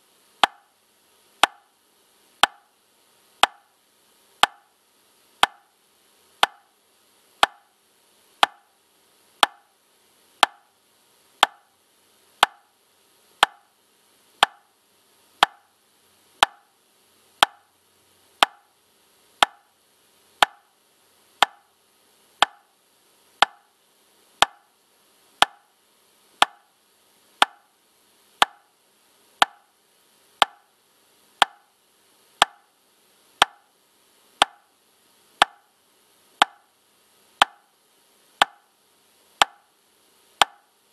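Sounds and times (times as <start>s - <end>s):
metronome clicking: 0.4s - 0.6s, 1.4s - 1.6s, 3.4s - 3.6s, 5.4s - 5.6s, 6.4s - 6.6s, 8.4s - 8.6s, 11.4s - 11.6s, 13.4s - 13.6s, 21.4s - 21.6s, 22.4s - 22.6s, 26.4s - 26.6s, 38.4s - 38.6s.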